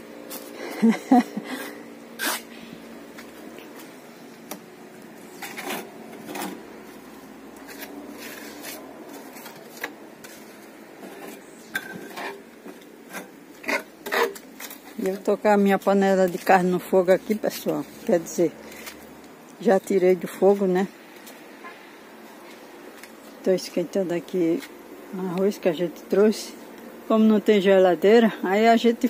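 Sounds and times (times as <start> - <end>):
trowel scraping mortar: 2.2 - 2.5, 5.4 - 6.6, 13.1 - 14.4.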